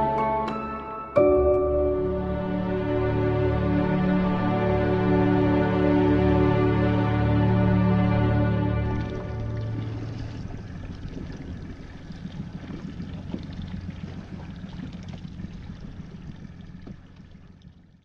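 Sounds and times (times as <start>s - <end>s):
boat engine running low: 0.0s - 18.0s
water splashing against hull: 8.4s - 18.0s.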